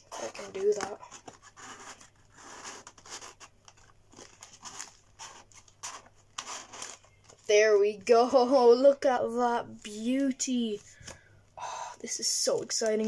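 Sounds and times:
cardboard box scraping and creasing: 0.1s - 3.5s, 4.2s - 7.0s.

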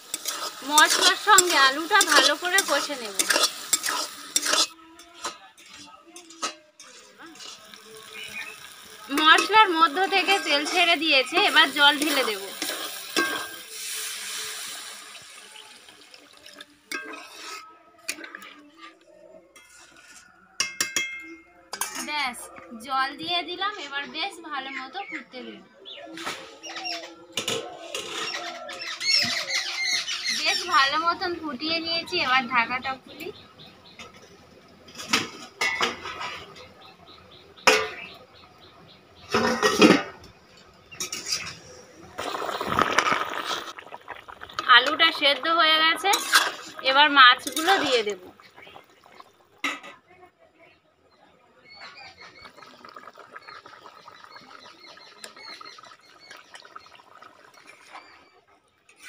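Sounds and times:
water hissing in hot oil: 0.0s - 4.8s, 6.9s - 17.6s, 40.9s - 49.6s, 52.2s - 58.1s
metal ladle stirring in pot: 0.0s - 14.8s, 15.4s - 22.1s, 39.3s - 49.9s
metal pot lid clanking: 0.1s - 7.5s, 9.1s - 13.6s, 20.6s - 22.1s, 35.0s - 36.7s, 37.6s - 38.2s, 39.3s - 40.3s, 44.8s - 46.8s.

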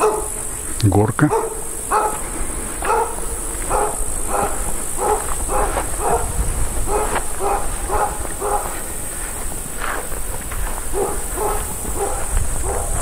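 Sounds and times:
dog barking: 0.0s - 0.5s, 1.2s - 8.9s, 10.9s - 13.0s.

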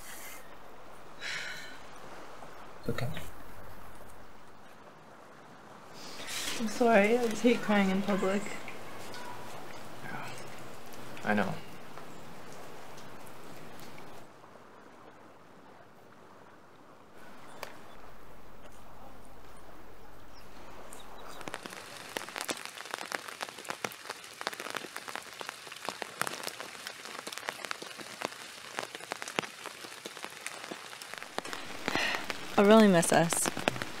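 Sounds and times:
rain pattering on umbrellas: 6.0s - 14.3s, 20.6s - 34.0s.

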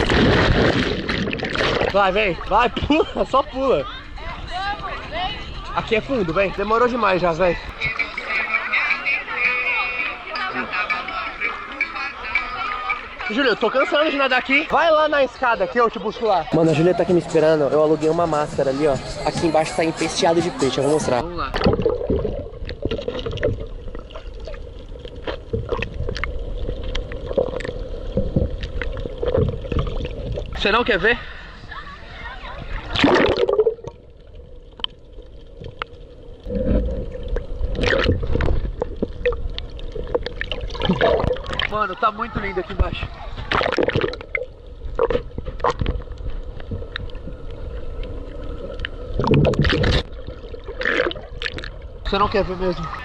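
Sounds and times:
muffled rush of water: 0.0s - 53.0s
muffled underwater rumble: 21.5s - 30.6s, 31.3s - 41.7s, 42.3s - 53.0s
underwater clicks and pops: 21.6s - 24.0s, 43.5s - 47.3s, 48.7s - 51.8s.

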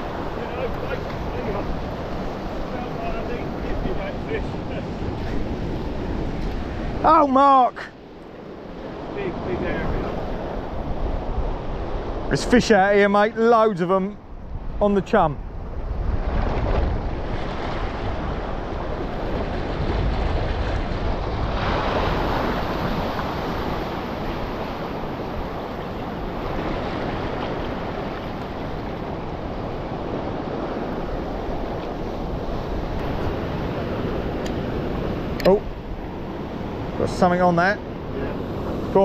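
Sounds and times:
wind buffeting microphone: 0.0s - 7.3s, 8.0s - 13.0s, 14.1s - 39.0s
waves washing against rocks: 16.1s - 39.0s.

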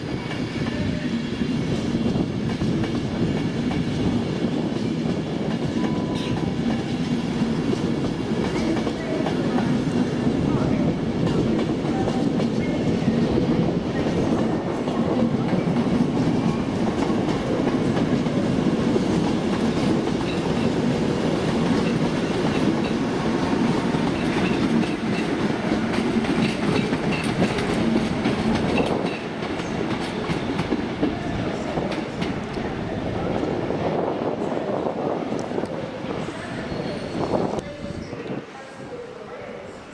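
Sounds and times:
train wheels clattering over rail joints: 14.0s - 31.2s.

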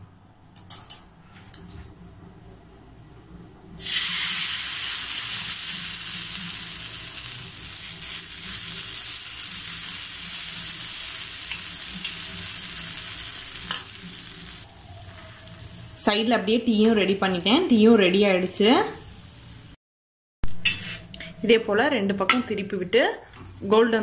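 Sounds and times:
batter sizzling on a griddle: 3.8s - 16.0s.

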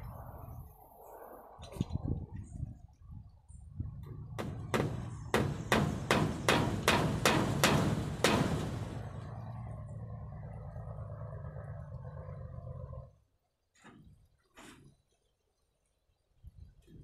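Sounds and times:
hammer blows on wood: 4.4s - 9.1s.

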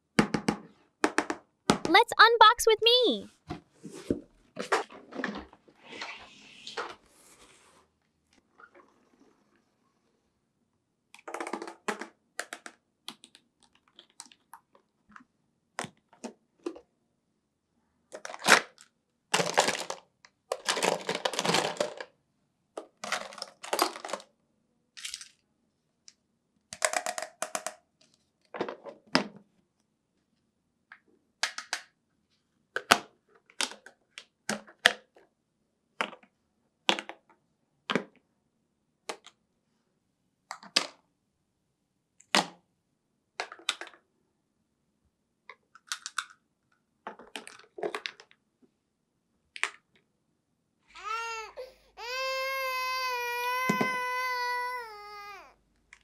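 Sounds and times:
plastic toy clicks and knocks: 26.7s - 27.8s, 45.8s - 46.4s.

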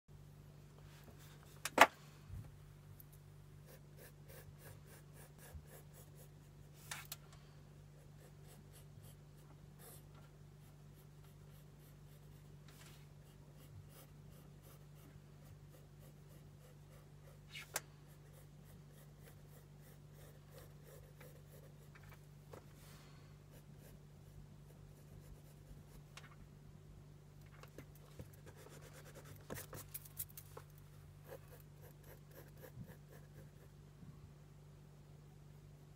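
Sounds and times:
low steady hum: 0.1s - 35.9s
pencil scratching on paper: 3.6s - 6.7s, 8.0s - 12.5s, 13.2s - 21.9s, 23.5s - 26.0s, 28.4s - 29.8s, 31.2s - 33.7s.

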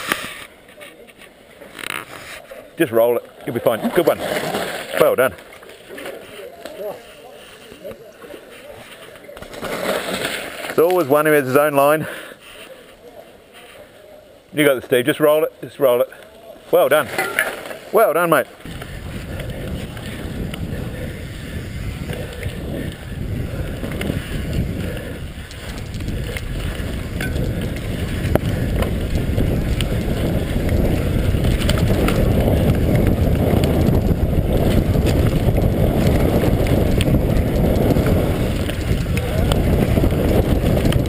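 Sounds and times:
bike clicks and rattles: 0.0s - 2.4s, 18.6s - 41.0s
tyres rumbling on dirt trail: 0.0s - 41.0s
wind on microphone: 18.6s - 41.0s.

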